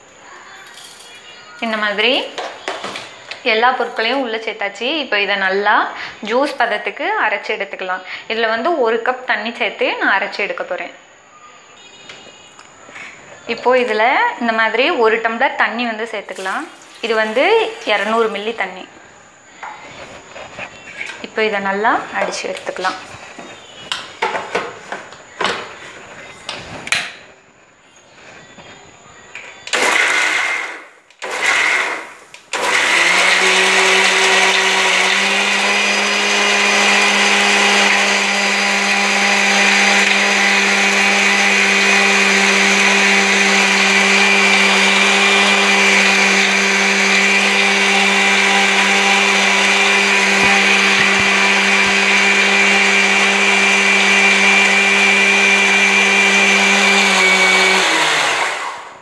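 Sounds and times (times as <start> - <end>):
mixer grinder motor running: 29.7 - 59.0.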